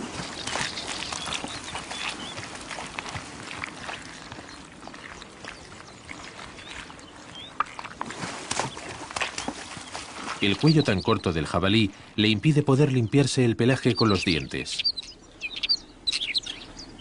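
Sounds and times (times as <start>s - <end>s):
mud squelching and splashing: 0.0s - 11.5s.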